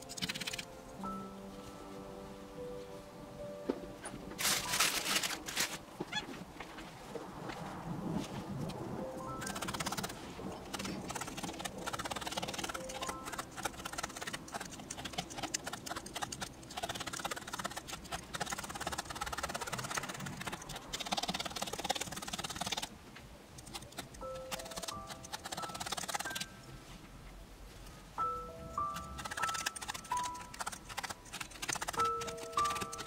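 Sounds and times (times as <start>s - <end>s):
felting needle clicking and scratching: 0.0s - 0.7s, 4.4s - 5.8s, 9.4s - 22.9s, 23.5s - 26.5s, 28.7s - 33.0s.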